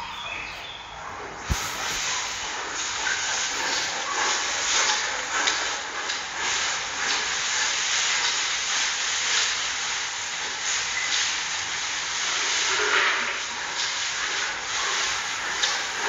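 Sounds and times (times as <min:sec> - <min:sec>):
background hiss: 0:00.0 - 0:16.0.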